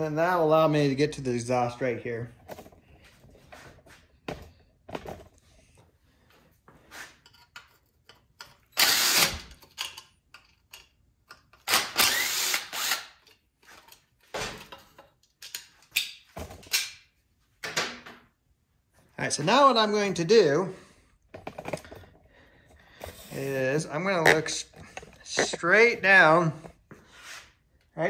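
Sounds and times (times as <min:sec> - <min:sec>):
metal parts and tools clattering: 0:07.2 - 0:08.8, 0:09.6 - 0:11.6, 0:13.2 - 0:17.0
cordless power driver running: 0:08.8 - 0:09.5, 0:11.7 - 0:13.1.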